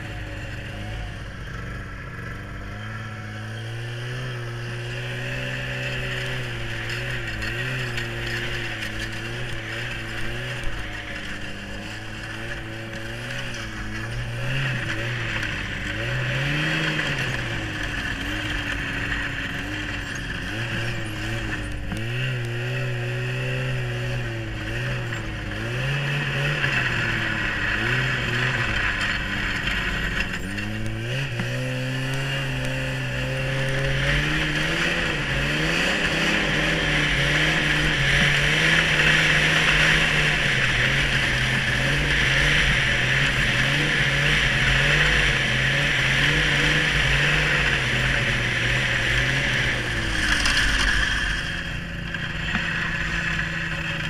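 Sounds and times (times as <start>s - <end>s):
snowmobile engine running: 0.0s - 54.0s.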